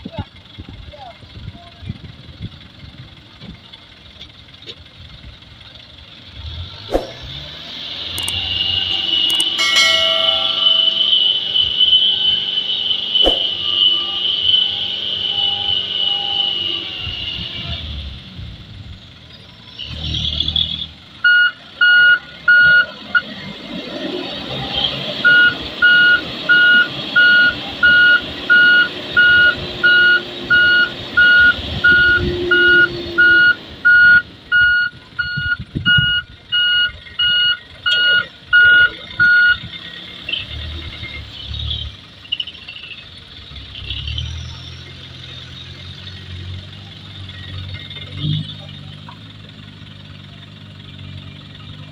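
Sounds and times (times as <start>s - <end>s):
diesel engine under load: 0.0s - 51.9s
reversing alarm beeping: 8.2s - 16.4s, 21.2s - 23.3s, 25.2s - 39.7s.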